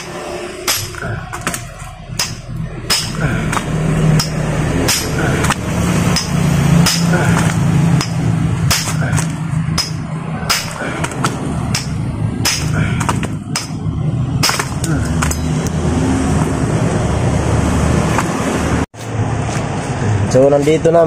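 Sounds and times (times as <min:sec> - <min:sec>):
sledgehammer striking metal: 0:00.0 - 0:15.5
steady low hum: 0:00.0 - 0:18.0.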